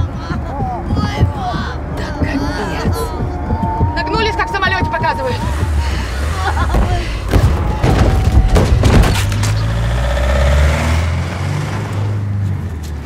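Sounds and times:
heavy thumps and knocks: 0.0s - 9.6s
van engine droning: 0.0s - 13.0s.

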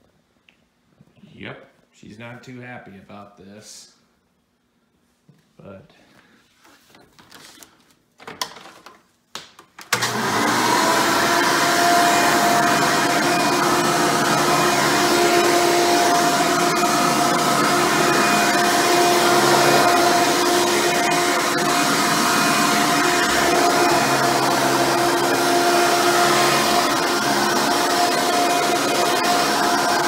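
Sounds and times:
vacuum cleaner running: 9.9s - 30.0s.

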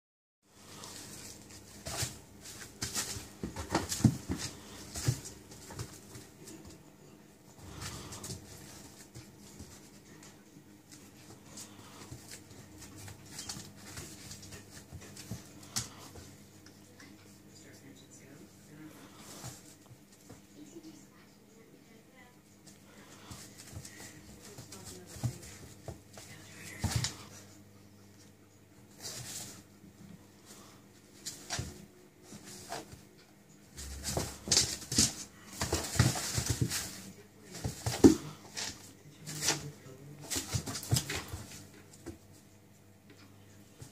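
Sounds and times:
puppy paws scrabbling on pad: 0.6s - 6.8s, 7.5s - 16.8s, 18.9s - 20.6s, 22.6s - 27.6s, 28.8s - 42.5s
puppy claws scrabbling on a pad: 33.8s - 42.2s.

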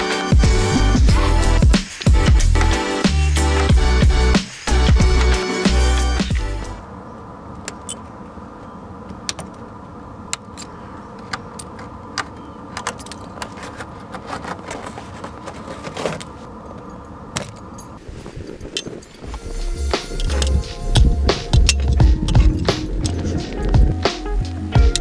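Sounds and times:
steady background hum: 0.0s - 25.0s
icicles snapping and clinking: 10.3s - 18.0s.

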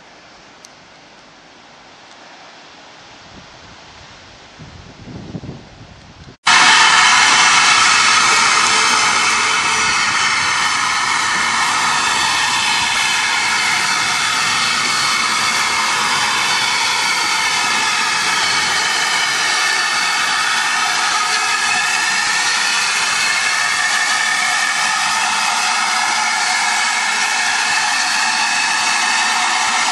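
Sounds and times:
steam locomotive safety valves hissing: 6.5s - 29.9s.

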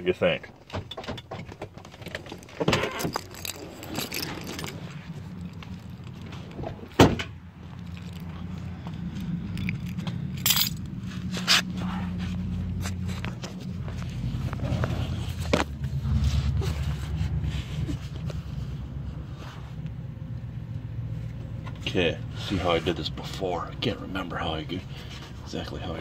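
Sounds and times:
rustling and clicks: 0.7s - 7.0s
car door shutting: 6.6s - 7.4s.

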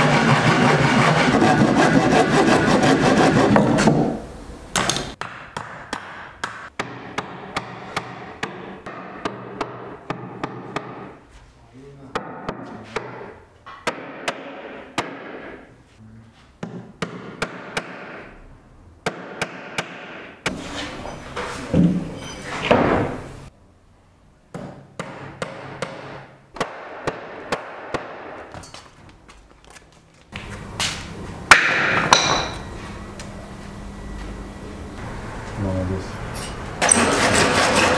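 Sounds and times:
hammer striking wooden boards: 4.8s - 11.2s, 12.1s - 15.7s, 16.6s - 18.3s, 19.0s - 20.4s, 24.5s - 28.6s, 31.5s - 32.6s.

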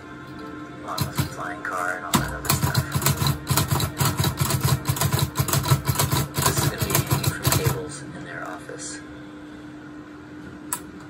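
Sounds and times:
typewriter keystrokes: 2.2s - 7.8s.

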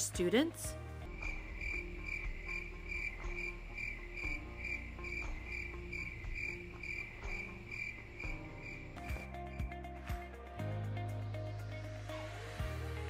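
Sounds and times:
cricket chirping: 1.0s - 9.8s.

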